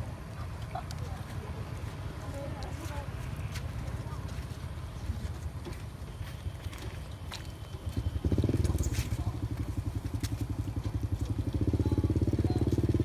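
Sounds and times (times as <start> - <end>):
small engine idling: 6.9 - 13.0.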